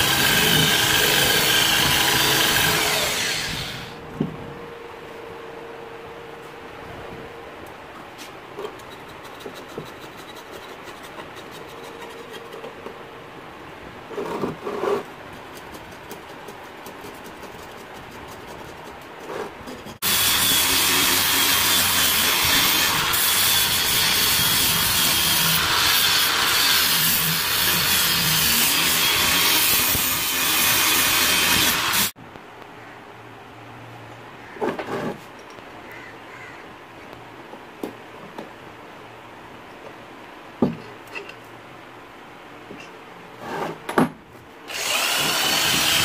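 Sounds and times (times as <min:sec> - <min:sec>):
angle grinder grinding metal: 0:00.0 - 0:04.0, 0:20.0 - 0:32.2, 0:44.7 - 0:46.0.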